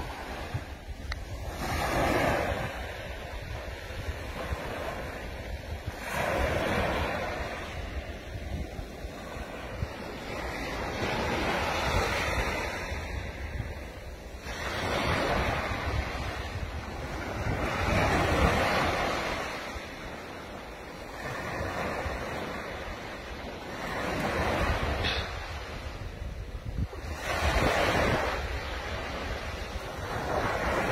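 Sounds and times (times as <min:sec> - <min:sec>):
small waves breaking on beach: 0:00.0 - 0:30.9
wind rumbling on microphone: 0:00.0 - 0:30.9.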